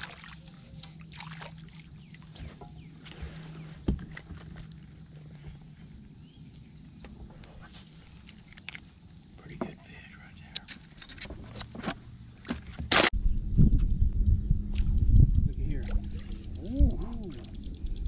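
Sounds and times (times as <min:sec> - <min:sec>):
steady low hum: 0:00.0 - 0:18.0
fishing rod and reel clicks: 0:14.7 - 0:18.0.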